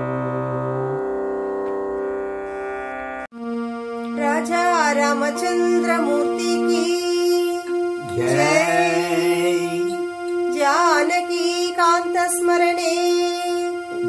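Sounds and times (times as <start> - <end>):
woman singing: 4.2 - 10.0, 10.6 - 13.8
steady drone: 4.4 - 14.0.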